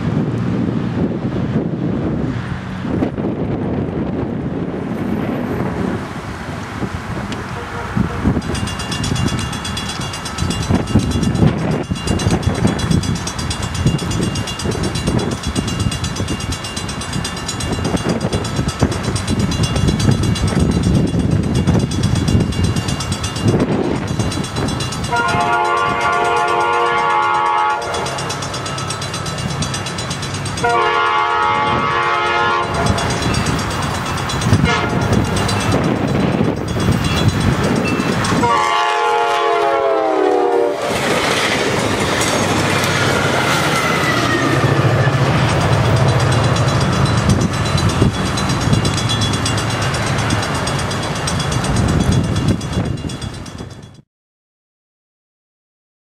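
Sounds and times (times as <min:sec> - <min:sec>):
diesel locomotive engine rumble: 0:00.0 - 0:54.0
train rushing by: 0:00.0 - 0:54.0
train air horn blasts: 0:07.4 - 0:08.4, 0:25.1 - 0:28.2, 0:30.6 - 0:33.2, 0:34.6 - 0:35.3, 0:38.4 - 0:41.0.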